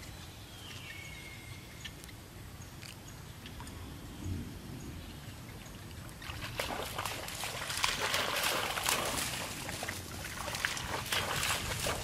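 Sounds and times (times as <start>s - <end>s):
water splashing: 5.9s - 12.0s.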